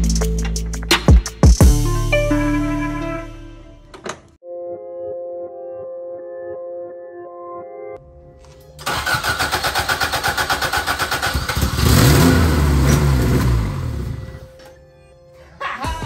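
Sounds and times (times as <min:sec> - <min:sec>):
starter motor cranking: 0:08.8 - 0:12.2
car engine revving: 0:08.8 - 0:14.5.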